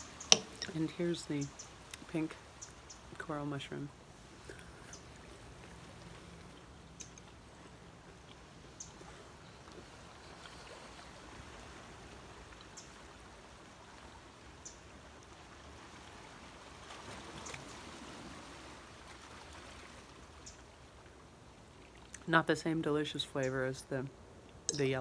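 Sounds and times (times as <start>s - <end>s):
outdoor background rush: 0.0s - 25.0s
quiet chewing with soft clicks: 4.3s - 11.2s, 21.8s - 22.3s, 24.4s - 24.9s.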